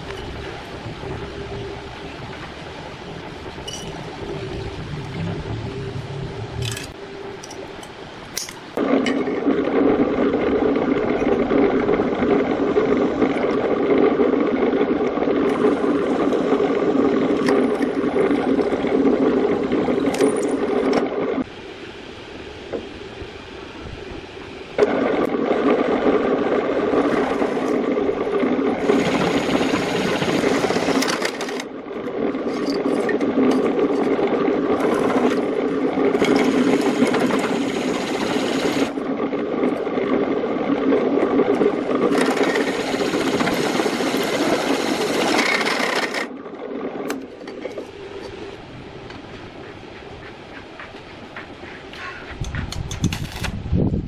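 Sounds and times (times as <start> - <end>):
drill press motor running: 26.9 - 31.6, 34.8 - 39.0, 41.4 - 46.3.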